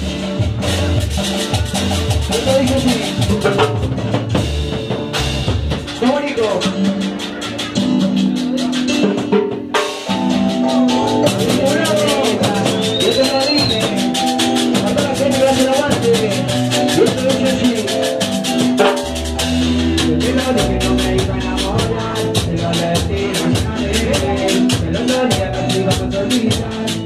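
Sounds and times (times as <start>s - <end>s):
fast percussion ticks: 0.0s - 4.0s, 11.0s - 27.0s
deep bass line: 0.0s - 9.3s, 10.1s - 27.0s
live cumbia band music: 0.0s - 27.0s
sustained keyboard notes: 10.1s - 27.0s.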